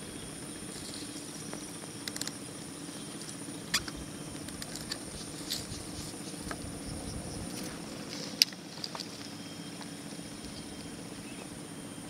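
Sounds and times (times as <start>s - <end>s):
high insect drone: 0.0s - 12.0s
bamboo pole creaking and clicking: 2.0s - 2.4s, 3.2s - 6.7s.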